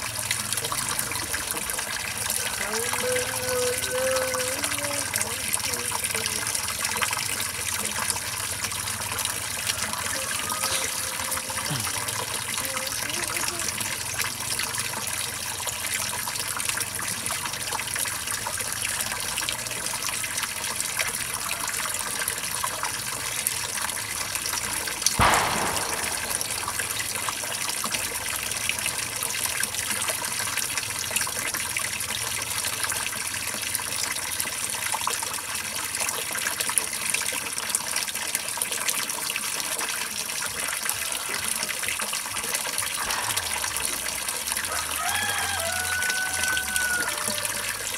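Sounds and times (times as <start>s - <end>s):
water streaming and splashing: 0.0s - 47.9s
loud thump: 25.2s - 27.6s, 43.0s - 44.3s.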